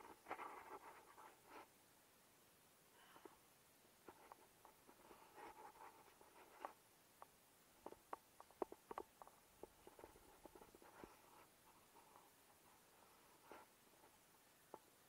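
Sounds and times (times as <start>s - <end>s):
small clicks and taps: 6.4s - 11.1s.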